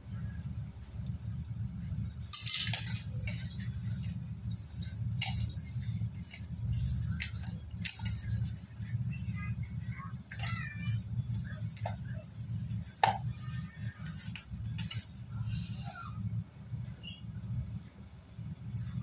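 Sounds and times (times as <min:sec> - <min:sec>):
steady low hum: 0:00.0 - 0:19.0
spoon scraping steel bowl: 0:02.3 - 0:15.2.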